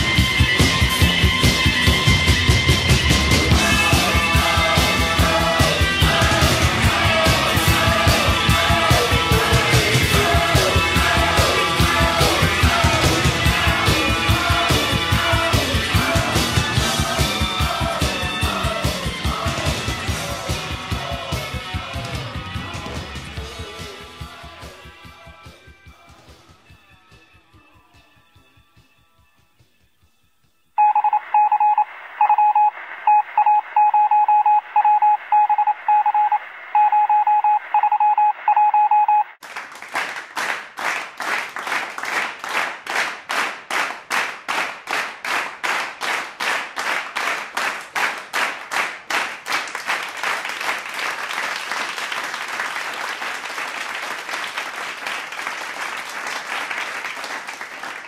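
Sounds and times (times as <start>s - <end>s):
rhythmic clapping: 0.0s - 25.1s, 39.4s - 58.0s
phone line noise: 30.8s - 39.4s
telephone beeps: 30.8s - 39.4s
applause: 39.4s - 58.0s.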